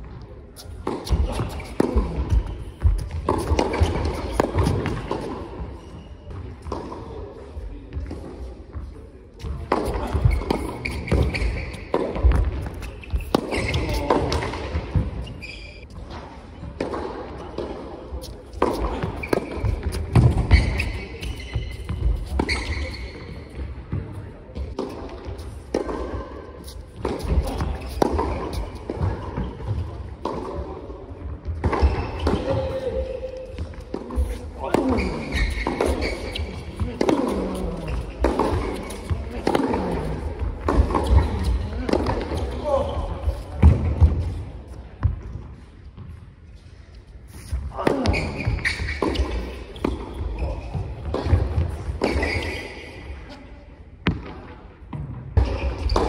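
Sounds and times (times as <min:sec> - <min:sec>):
racket hitting ball: 0:00.7 - 0:05.6, 0:09.4 - 0:15.3, 0:18.5 - 0:22.7, 0:27.0 - 0:30.7, 0:33.5 - 0:44.4, 0:47.8 - 0:52.6, 0:54.1 - 0:56.0.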